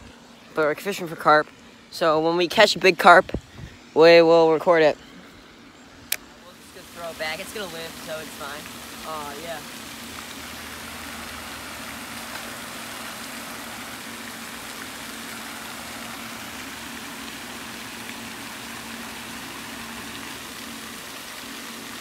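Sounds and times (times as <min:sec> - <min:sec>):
fountain spray splashing on water: 0:05.5 - 0:22.0.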